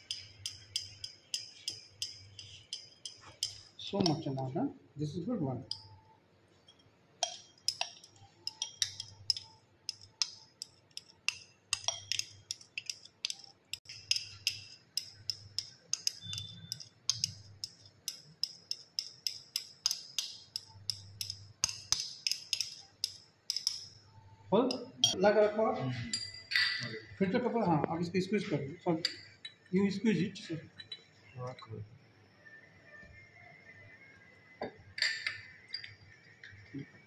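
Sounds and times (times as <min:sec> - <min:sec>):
glass rod clinking in glass beaker: 0:00.0 - 0:04.5, 0:05.6 - 0:06.0, 0:06.6 - 0:24.0, 0:24.6 - 0:25.2, 0:26.0 - 0:27.0, 0:29.0 - 0:29.8, 0:30.7 - 0:31.4, 0:34.8 - 0:36.6.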